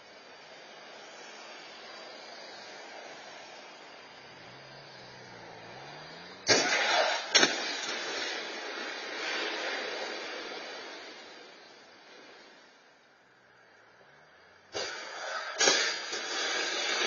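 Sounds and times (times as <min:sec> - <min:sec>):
car engine hum: 0:00.0 - 0:17.0
car crash crunch: 0:02.7 - 0:13.3, 0:14.7 - 0:17.0
sharp bang: 0:06.4 - 0:09.8, 0:14.8 - 0:17.0.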